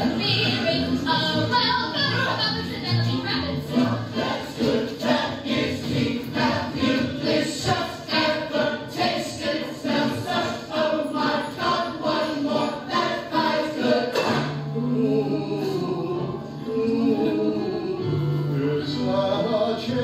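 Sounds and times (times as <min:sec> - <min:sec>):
ensemble singing with accompaniment: 0:00.0 - 0:20.0.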